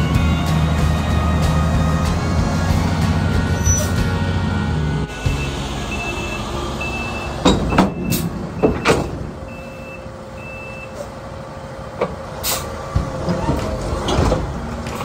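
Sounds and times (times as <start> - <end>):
truck engine running: 0.0 - 15.0
truck reverse alarm beeping: 0.1 - 11.7.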